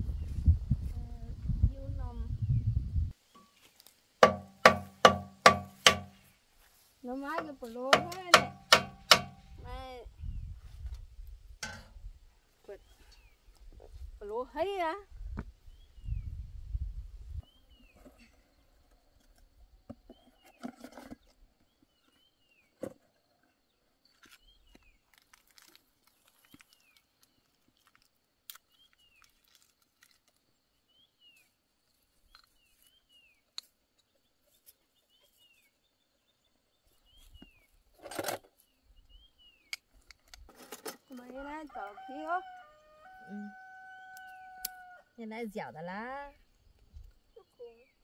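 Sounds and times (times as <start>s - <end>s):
sharp clicks and knocks: 4.2s - 6.2s, 7.3s - 9.4s
small bird chirping: 30.7s - 37.9s.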